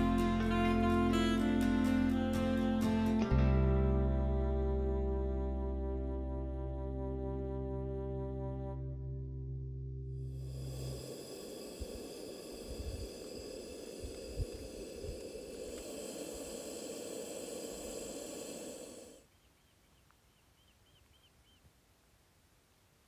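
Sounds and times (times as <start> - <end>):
gas stove burner hissing: 10.3 - 19.2
wind buffeting microphone: 10.5 - 18.9
faint bird chirps: 19.1 - 21.8.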